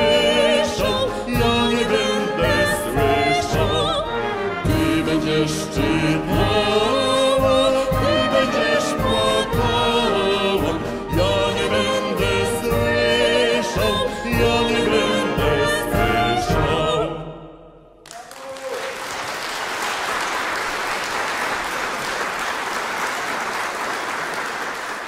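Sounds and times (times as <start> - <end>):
man and woman singing: 0.0 - 17.2
wind band playing: 0.0 - 17.2
audience applause: 18.0 - 25.0.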